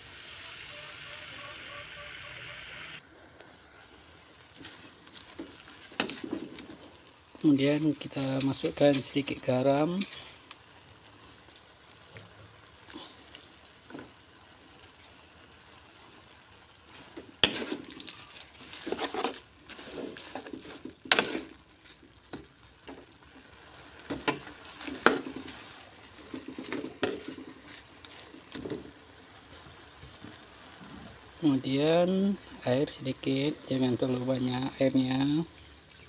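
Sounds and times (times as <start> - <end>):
metal spatula scraping a wok: 17.4 - 21.6.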